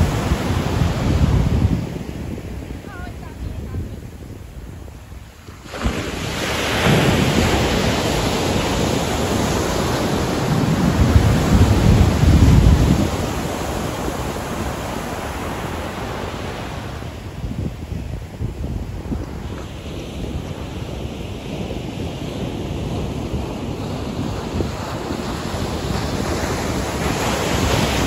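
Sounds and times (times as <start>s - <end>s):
surf breaking on beach: 0.0s - 28.0s.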